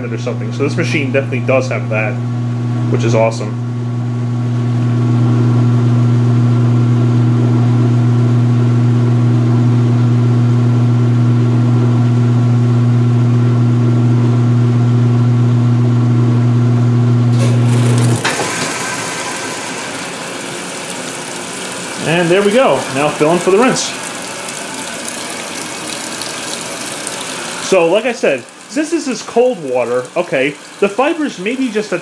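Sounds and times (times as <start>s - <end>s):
washer motor humming: 0.0s - 32.0s
water rushing into tub: 17.3s - 32.0s.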